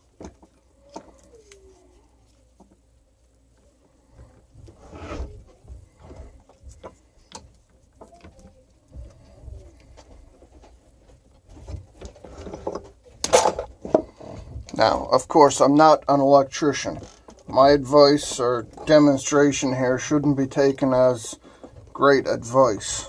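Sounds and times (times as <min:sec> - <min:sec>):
hands handling wires and tape: 0:00.0 - 0:14.8.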